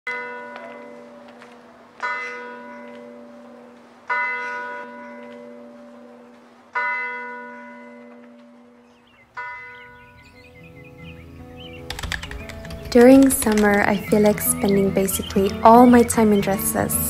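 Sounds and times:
church bell tolling: 0.1 - 11.8.

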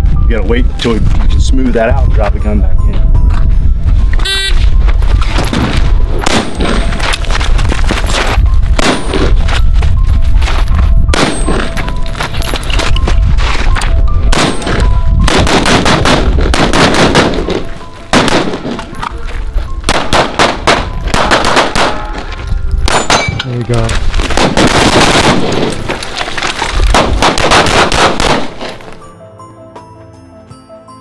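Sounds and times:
background music: 0.0 - 26.2, 26.8 - 31.0
rapid gunfire: 15.3 - 17.6, 19.9 - 22.0, 24.3 - 25.7, 26.9 - 28.8.

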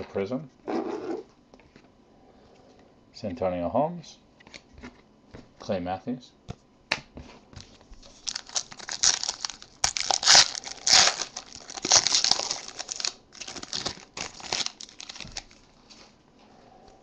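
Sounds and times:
foil wrapper crinkling and tearing: 8.0 - 16.0.

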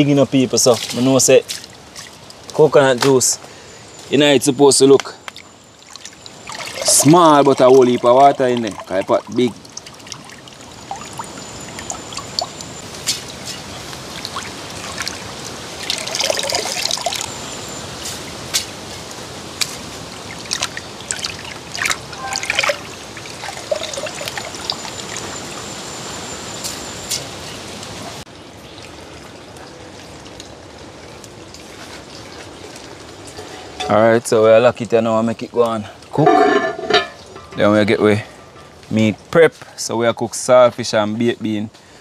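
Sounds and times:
water trickling and splashing: 0.0 - 42.0.

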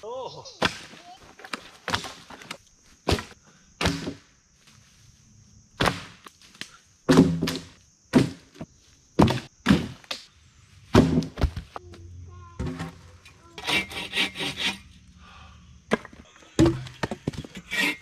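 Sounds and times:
logs knocking onto pile: 0.6 - 4.2, 5.8 - 6.2, 7.1 - 10.1, 10.9 - 11.7.

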